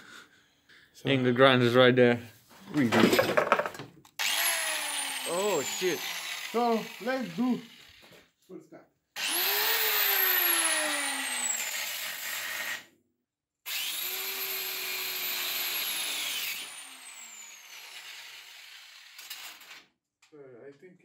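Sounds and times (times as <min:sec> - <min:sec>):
angle grinder cutting steel: 0:04.2 - 0:08.2, 0:09.2 - 0:12.9, 0:13.7 - 0:19.7.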